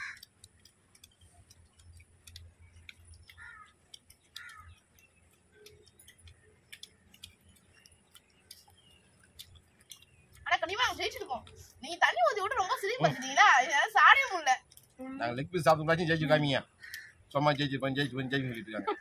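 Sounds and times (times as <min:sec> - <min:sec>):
people chewing and eating: 0:00.0 - 0:19.0.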